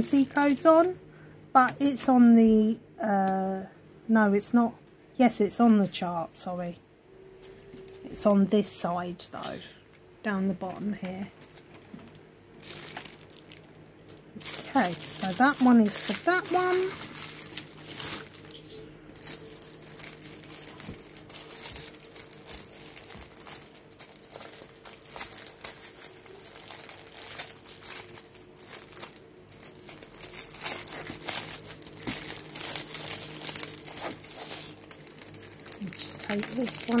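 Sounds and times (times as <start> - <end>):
plastic packaging crinkling: 10.6 - 37.0.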